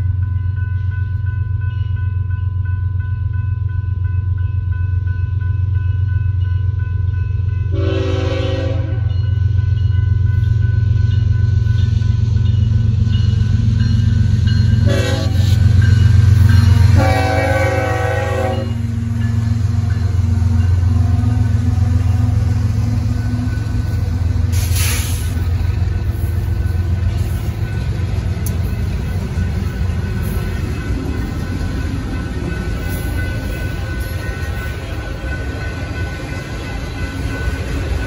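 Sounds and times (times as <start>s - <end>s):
diesel locomotive engines: 0.0s - 38.0s
train horn: 7.7s - 9.2s, 14.8s - 15.7s, 16.7s - 19.0s
wheels clattering on rails: 11.1s - 38.0s
short air hiss: 24.5s - 25.4s.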